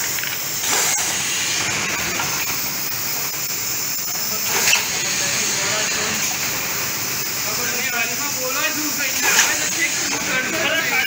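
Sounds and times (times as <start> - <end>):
pneumatic machine hissing: 0.0 - 11.0.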